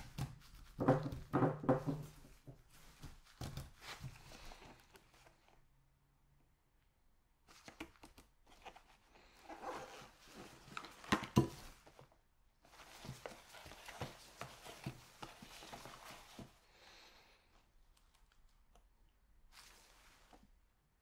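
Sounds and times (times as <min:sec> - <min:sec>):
cardboard box rustling and scraping: 0:08.6 - 0:12.0.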